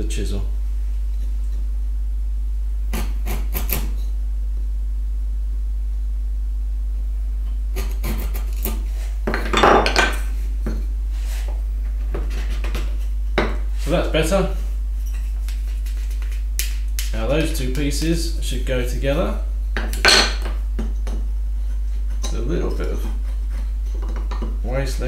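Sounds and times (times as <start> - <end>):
steady low hum: 0.0 - 25.0
chisel scraping wood: 7.8 - 9.1, 12.2 - 13.1, 21.6 - 24.4
knocks and scrapes: 11.1 - 14.0.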